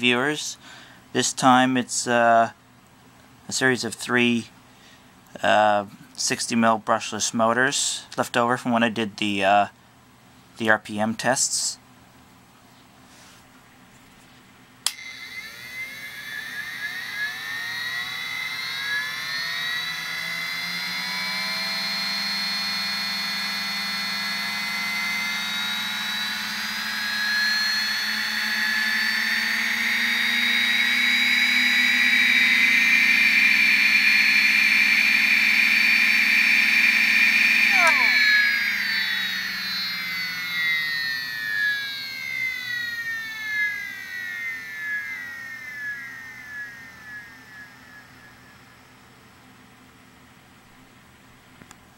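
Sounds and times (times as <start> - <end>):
fans whining: 14.2 - 49.5
fan switch click: 14.8 - 15.1.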